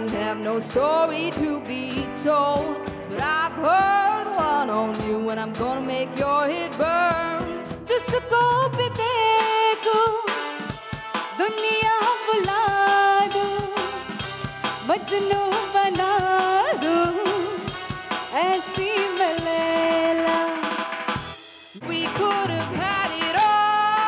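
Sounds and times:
woman singing: 0:00.0 - 0:10.6, 0:11.3 - 0:14.1, 0:14.8 - 0:20.9, 0:21.8 - 0:24.0
live band playing: 0:00.0 - 0:24.0.

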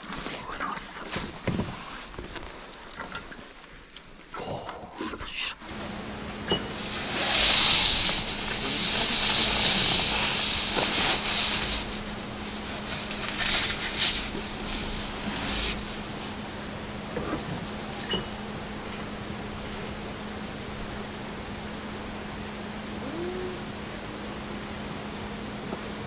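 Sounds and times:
water cannon spraying hiss: 0:05.7 - 0:24.4
low motor hum: 0:05.7 - 0:26.0.

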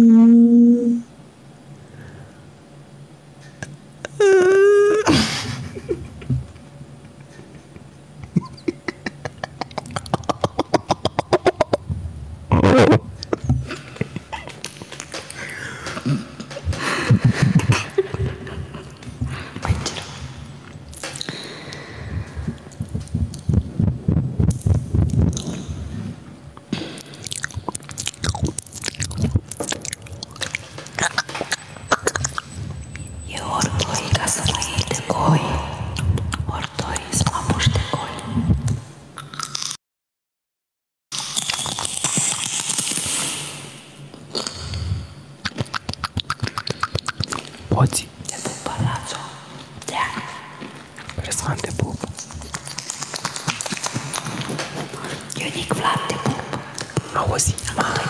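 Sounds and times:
man's croaking mouth clicks: 0:08.2 - 0:11.9, 0:20.9 - 0:25.7, 0:27.0 - 0:35.0, 0:36.0 - 0:39.8, 0:41.2 - 0:54.7
man's rasping mouth noise: 0:08.2 - 0:11.9, 0:21.0 - 0:25.9, 0:44.3 - 0:58.0
wet crunchy chewing: 0:27.0 - 0:32.6, 0:41.2 - 0:43.6, 0:49.0 - 0:58.0.

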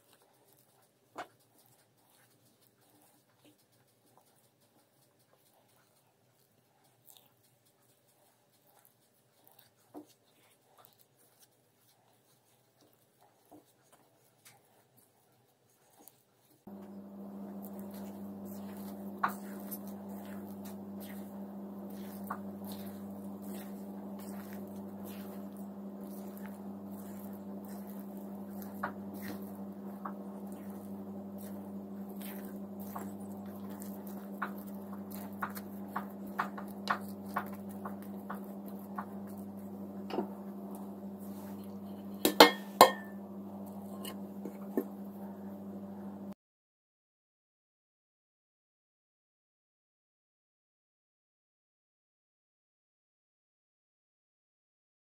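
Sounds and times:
steady low hum: 0:16.7 - 0:46.4
spatula knocking against bowl: 0:16.8 - 0:43.2
dishware clinking: 0:42.3 - 0:43.2.

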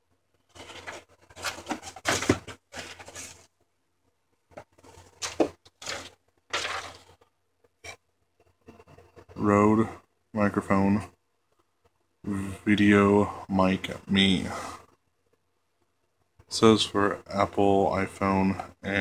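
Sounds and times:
packaging rustling and scraping: 0:00.5 - 0:03.5, 0:04.5 - 0:07.3.

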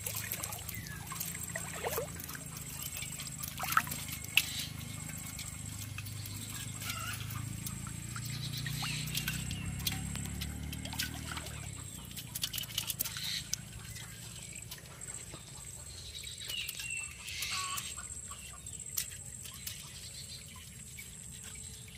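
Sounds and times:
shrimp clicking in metal pot: 0:00.0 - 0:14.9.

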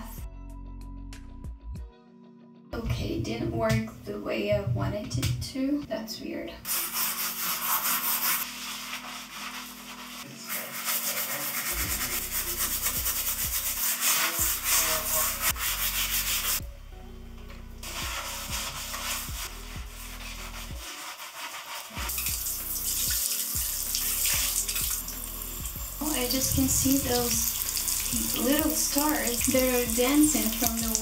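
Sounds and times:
gloved hand scrubbing bathtub: 0:06.7 - 0:16.6, 0:17.8 - 0:25.1, 0:26.0 - 0:31.0.

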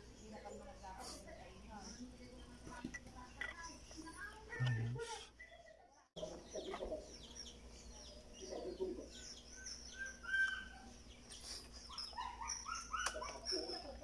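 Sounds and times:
small birds chirping: 0:00.0 - 0:14.0
chickens clucking: 0:06.2 - 0:14.0.

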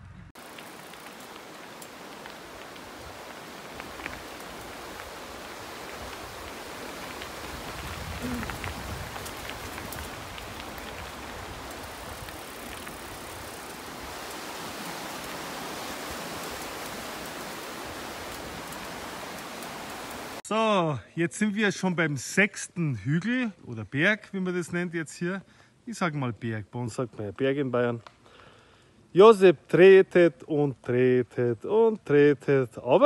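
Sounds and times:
bike rolling and wind noise: 0:00.0 - 0:20.4.

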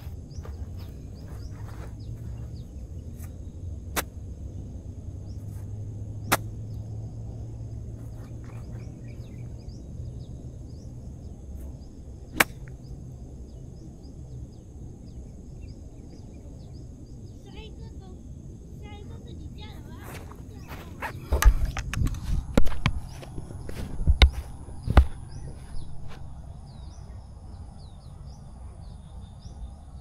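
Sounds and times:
birds chirping: 0:00.0 - 0:30.0
insects droning: 0:00.0 - 0:30.0
golf club striking ball: 0:06.2 - 0:06.6, 0:12.3 - 0:12.8.

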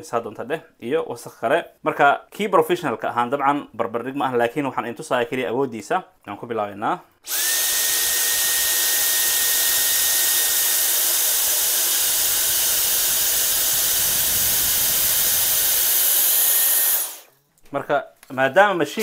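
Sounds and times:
vacuum cleaner motor whining: 0:07.3 - 0:17.3.

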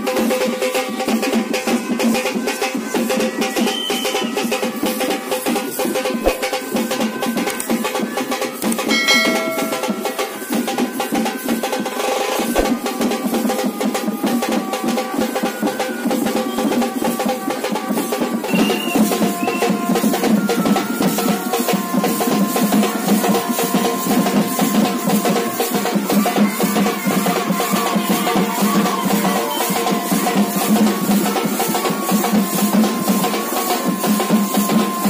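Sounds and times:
music with dense drumming: 0:00.0 - 0:35.0.

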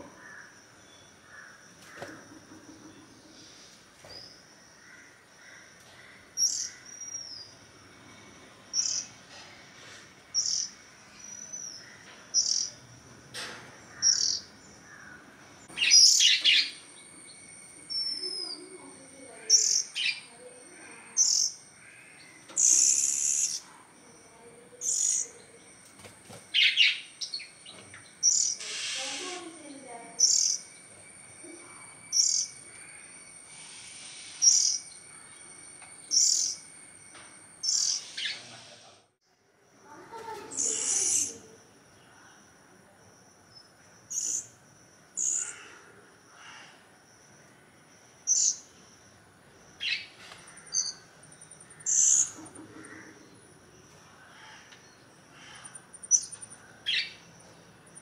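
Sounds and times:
harsh rasping bird calls: 0:04.8 - 0:07.3, 0:13.8 - 0:16.9, 0:17.9 - 0:23.7, 0:26.5 - 0:30.8, 0:37.6 - 0:38.7, 0:45.2 - 0:46.8, 0:49.8 - 0:53.4, 0:54.0 - 0:57.4.

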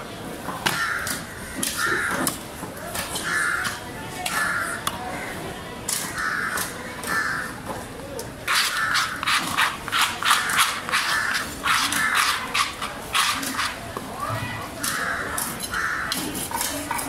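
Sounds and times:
crows cawing: 0:00.7 - 0:02.3, 0:03.2 - 0:05.4, 0:06.0 - 0:07.6, 0:08.5 - 0:09.2, 0:10.2 - 0:12.4, 0:14.8 - 0:16.2.

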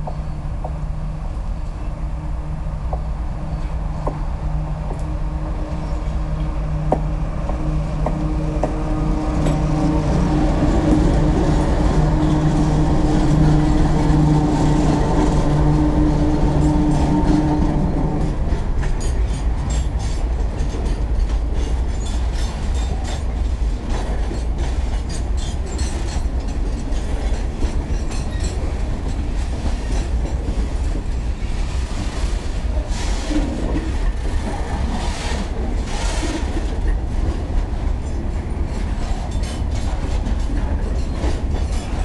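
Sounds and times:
locomotive engine drone: 0:00.0 - 0:32.9
train cars clacking over rail joints: 0:06.8 - 0:42.0.

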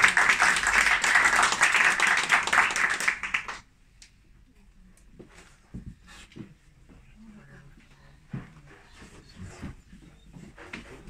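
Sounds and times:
audience applauding: 0:00.0 - 0:03.7.

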